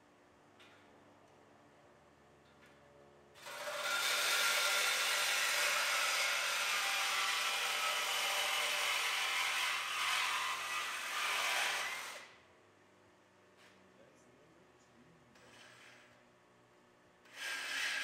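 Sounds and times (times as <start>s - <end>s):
reciprocating saw cutting steel pipe: 3.4s - 12.3s, 17.3s - 18.0s.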